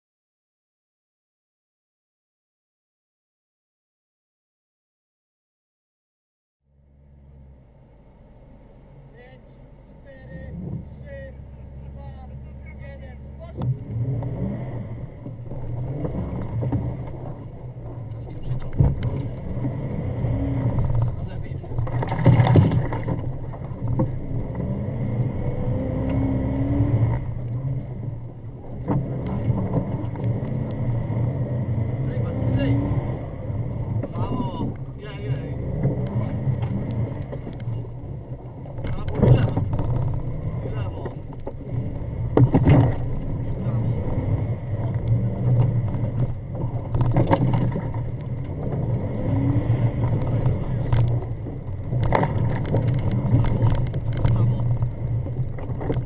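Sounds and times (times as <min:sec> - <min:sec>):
car engine revving: 0:06.7 - 0:56.0
suspension knocks over bumps: 0:15.0 - 0:35.0, 0:35.7 - 0:56.0.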